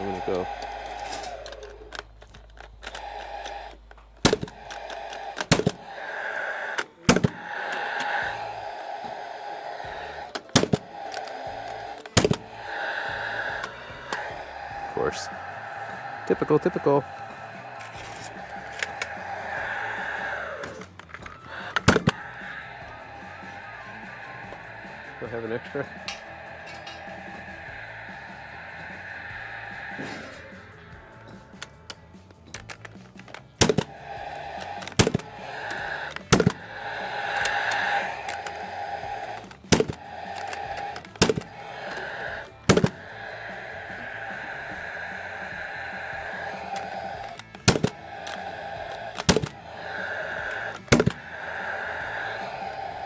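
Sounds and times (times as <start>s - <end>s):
tool handling clicks: 0.8s - 5.7s, 31.3s - 33.9s, 38.2s - 38.6s, 39.4s - 42.9s, 46.7s - 49.6s.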